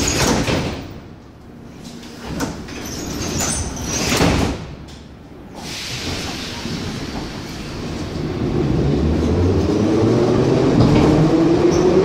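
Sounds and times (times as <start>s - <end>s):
pneumatic sliding doors closing: 2.1s - 4.8s, 5.5s - 12.0s
train moving off: 5.5s - 12.0s.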